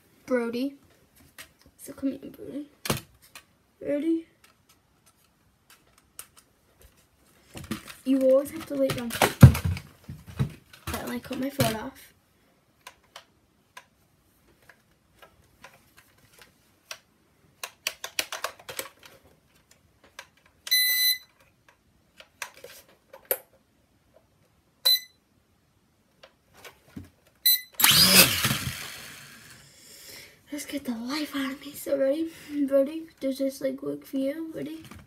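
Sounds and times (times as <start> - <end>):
light clicks and taps of handling: 12.8 - 20.7.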